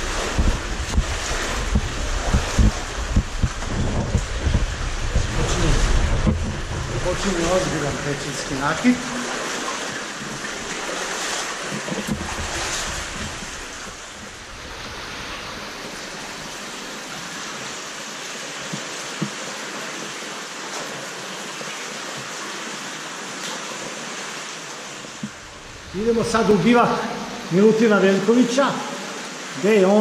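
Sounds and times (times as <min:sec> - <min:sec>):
underground stream rushing: 0:00.0 - 0:30.0.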